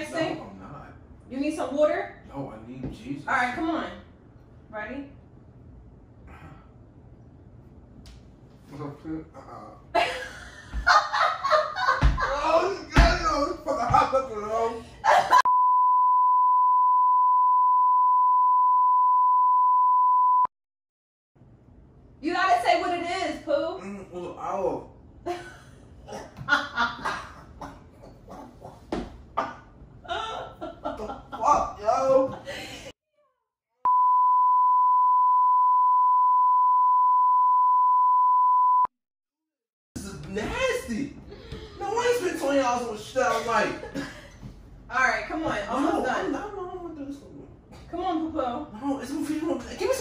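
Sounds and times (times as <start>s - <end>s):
censor bleep tone: 15.5s - 20.5s, 33.9s - 38.9s.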